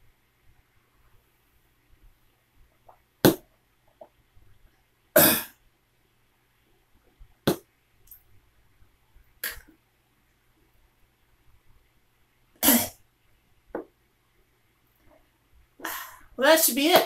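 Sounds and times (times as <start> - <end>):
person coughing: 5.2 - 5.6.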